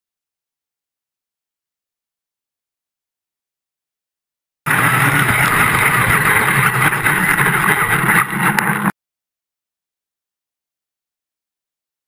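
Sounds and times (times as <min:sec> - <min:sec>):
toy truck motor on sand: 0:04.7 - 0:08.9.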